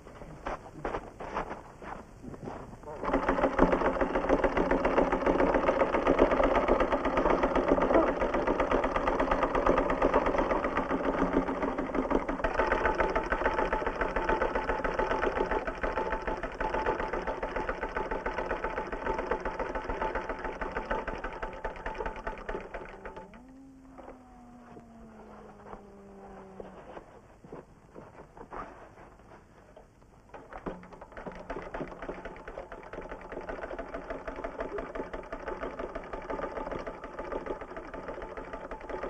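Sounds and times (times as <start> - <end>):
sewing machine running: 2.9 - 24.1, 30.3 - 39.0.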